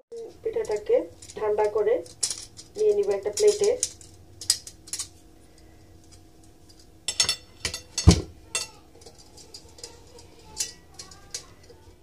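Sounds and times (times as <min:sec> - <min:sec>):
dishware clinking on plate: 0:07.1 - 0:11.8.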